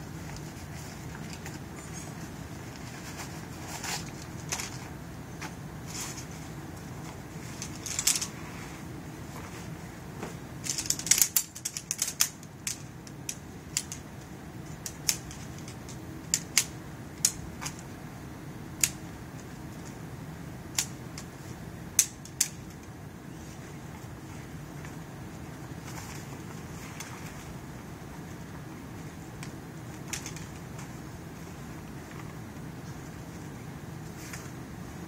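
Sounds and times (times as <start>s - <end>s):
fabric rustling: 0.0s - 11.2s
steady low hum: 0.0s - 35.0s
pole sections clicking together: 10.6s - 17.8s.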